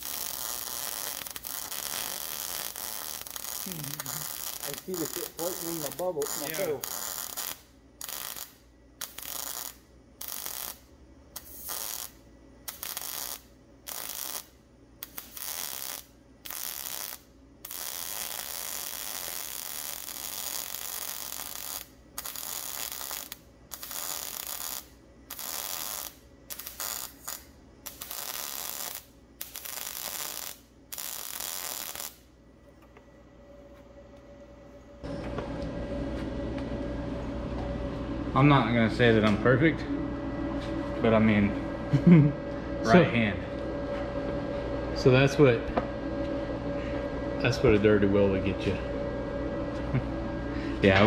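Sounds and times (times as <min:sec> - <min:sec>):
welding arc crackling: 0:00.0 - 0:32.3.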